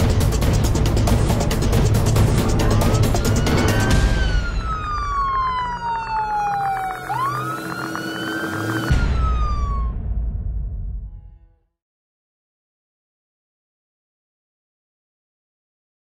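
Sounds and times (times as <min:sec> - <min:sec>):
music with a beat: 0:00.0 - 0:04.0
siren wailing: 0:02.4 - 0:10.2.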